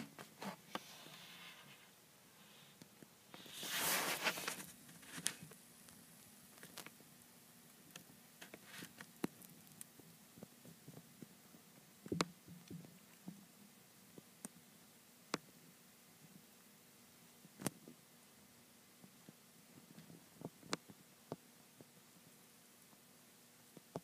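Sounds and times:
rustling in wood shavings: 3.4 - 5.3.

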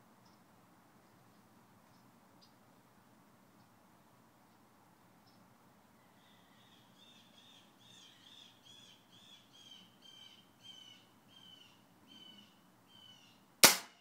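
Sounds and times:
bird calling repeated notes: 6.2 - 14.0
air rifle firing: 13.6 - 14.0.

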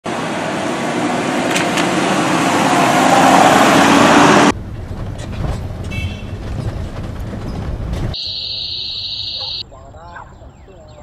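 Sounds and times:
engine and road rumble in car cabin: 4.2 - 9.6.

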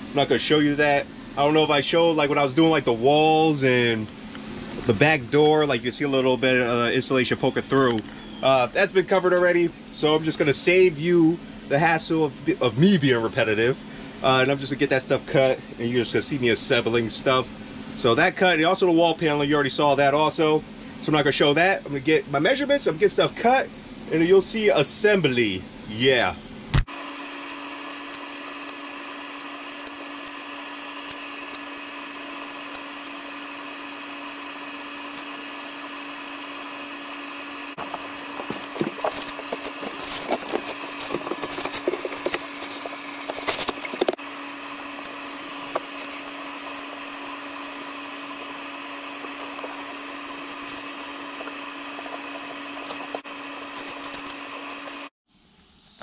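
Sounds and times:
steady hum: 0.0 - 55.1
foam board knocking and crackling: 37.8 - 44.2.

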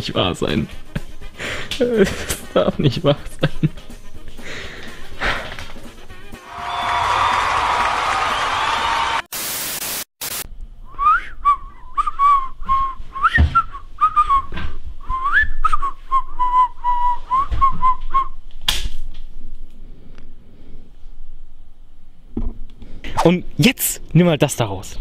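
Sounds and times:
static hiss: 9.0 - 10.5
person whistling a tune: 10.9 - 18.4.

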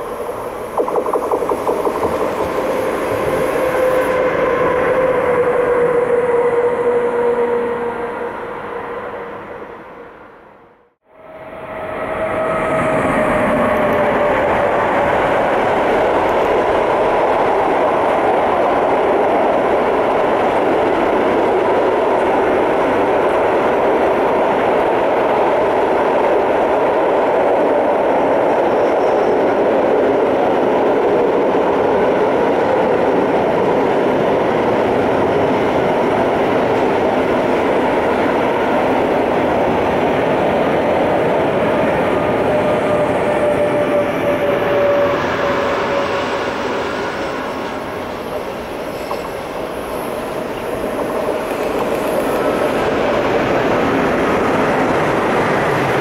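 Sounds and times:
thin steady whine: 0.0 - 4.2
freight train rumbling past: 0.0 - 56.0.

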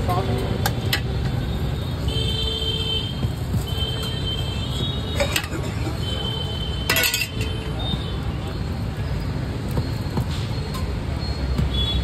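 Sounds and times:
low traffic rumble: 0.0 - 12.0
steel utensils clicking: 6.9 - 7.5.

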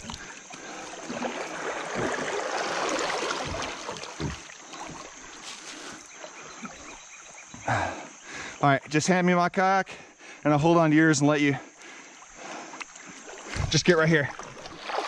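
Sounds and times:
river rushing and splashing: 0.7 - 5.7
knocks against kayak hull: 1.9 - 5.0.

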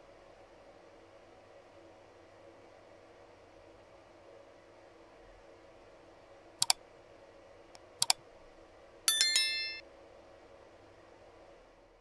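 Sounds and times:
mouse clicks: 8.0 - 8.2
bright bell chime: 9.1 - 9.8.

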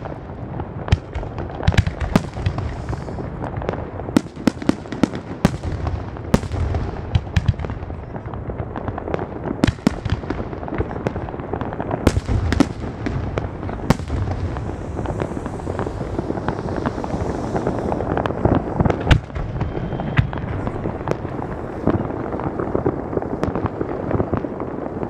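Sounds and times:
firework bangs: 0.0 - 25.0
firework crackle: 0.0 - 25.0
low rumble: 14.4 - 22.7.

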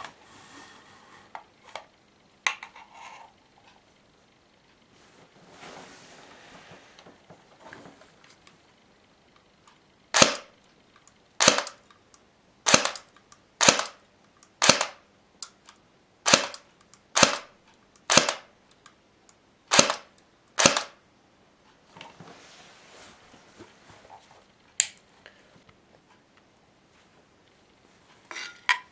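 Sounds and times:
airsoft pistol shots: 10.2 - 10.5, 11.4 - 11.8, 12.7 - 14.0, 14.6 - 15.0, 16.2 - 16.6, 17.2 - 17.5, 18.1 - 18.5, 19.7 - 21.0.

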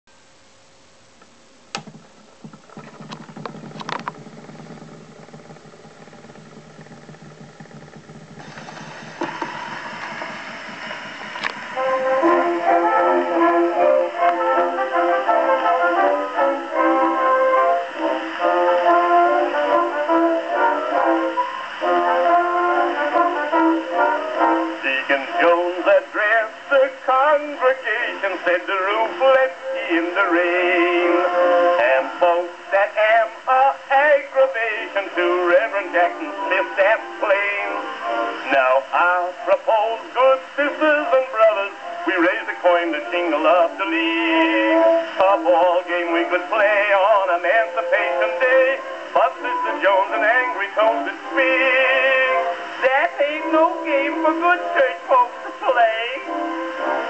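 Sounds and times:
gramophone motor clicking: 1.2 - 13.4
turntable motor whirring: 1.7 - 13.4
brass instrumental music: 8.4 - 33.4, 34.6 - 57.0
man singing with vibrato: 11.5 - 57.0.

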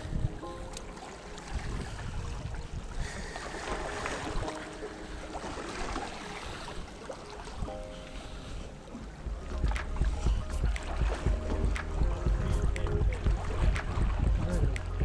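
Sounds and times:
wind buffeting microphone: 0.0 - 0.6, 1.4 - 4.5, 9.1 - 15.0.

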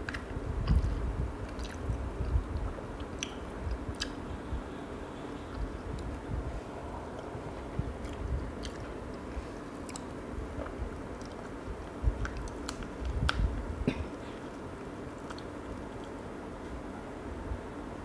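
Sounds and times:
chewing: 0.0 - 4.2, 7.1 - 13.4, 14.3 - 16.2.

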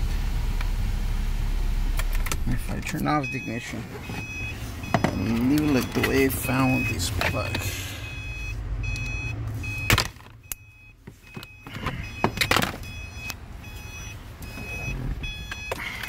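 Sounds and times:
car warning chime dinging: 2.6 - 16.0
handling clicks and knocks: 4.9 - 7.6.

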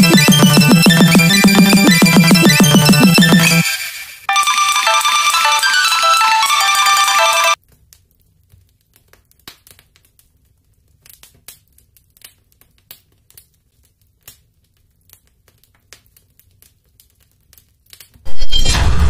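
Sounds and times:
faint clicks and crackles: 7.6 - 18.2.

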